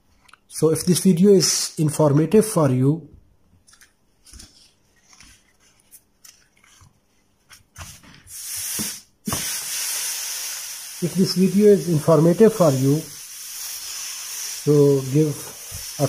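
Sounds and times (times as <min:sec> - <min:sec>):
steam iron hissing: 0:08.3 - 0:16.0.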